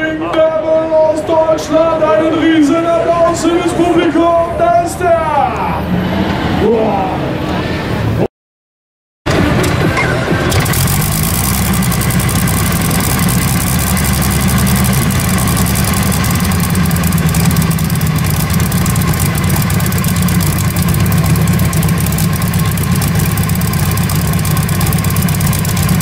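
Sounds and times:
tractor engine idling: 0:09.3 - 0:26.0.

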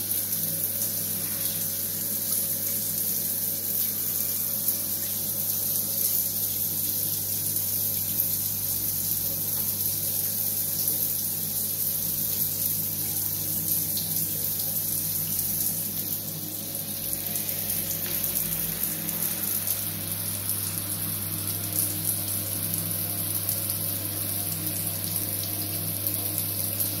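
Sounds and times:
shower spray on tiled floor: 0:17.1 - 0:22.4.

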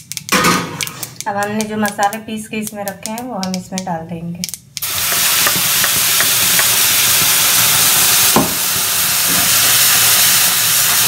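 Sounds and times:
spice paste sizzling in hot oil: 0:04.8 - 0:11.0.

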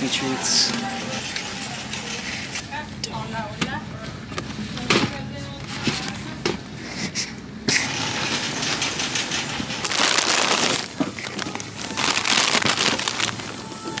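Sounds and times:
snack packaging rustling: 0:09.8 - 0:14.0.

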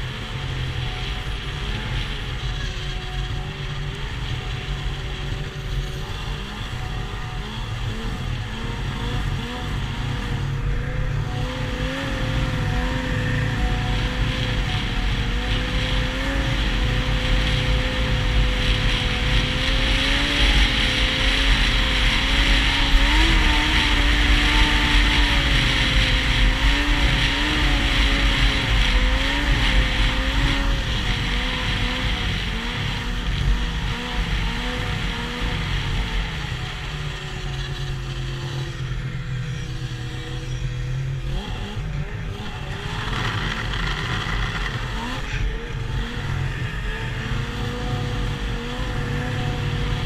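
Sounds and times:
snowmobile engine running: 0:00.0 - 0:50.0.

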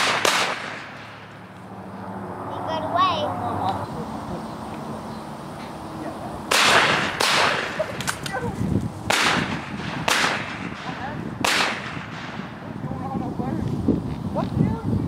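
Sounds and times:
shotgun shots: 0:00.0 - 0:01.3, 0:06.5 - 0:08.4, 0:09.1 - 0:12.6.

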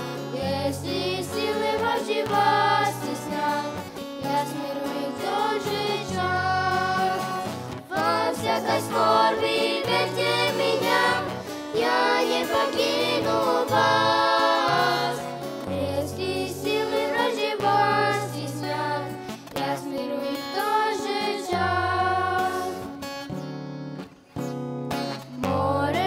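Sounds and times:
children singing into microphones: 0:00.0 - 0:23.0, 0:25.4 - 0:26.0
acoustic guitar: 0:00.0 - 0:26.0.

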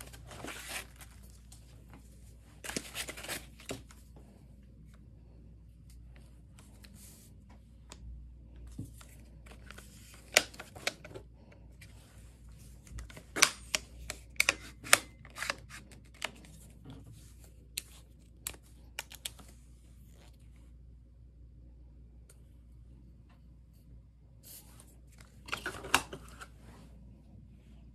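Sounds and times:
cardboard box rustling: 0:00.0 - 0:01.4.

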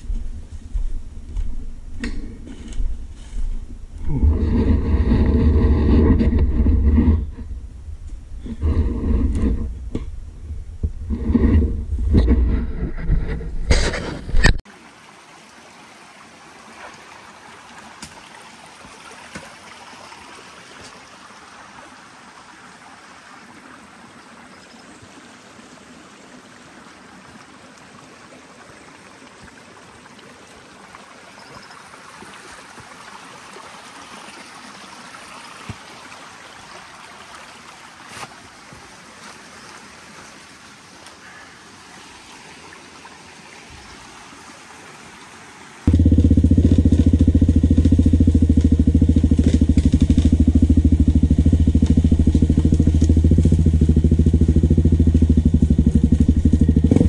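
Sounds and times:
water rushing over stones: 0:13.8 - 0:56.8
loud low rumble: 0:45.9 - 0:57.0.

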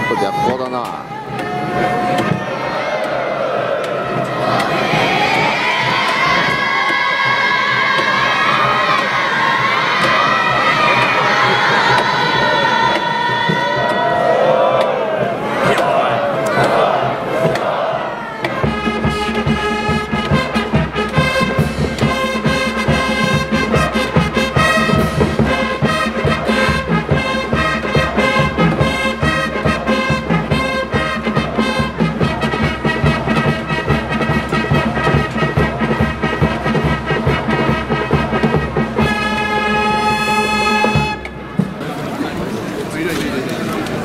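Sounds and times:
busy beat: 0:00.0 - 0:41.9
trumpets and trombones playing: 0:15.6 - 0:41.6.

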